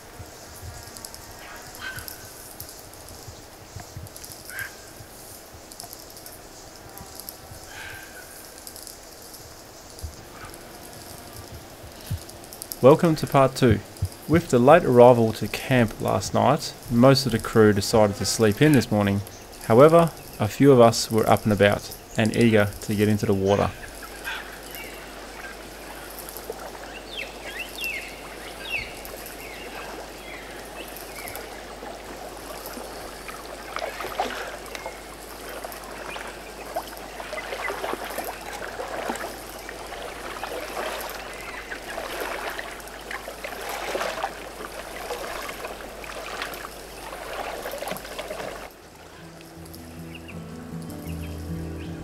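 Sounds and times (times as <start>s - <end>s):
river water trickling and lapping: 0.0s - 52.0s
small water splashes: 23.7s - 49.8s
bird chirps: 49.2s - 52.0s.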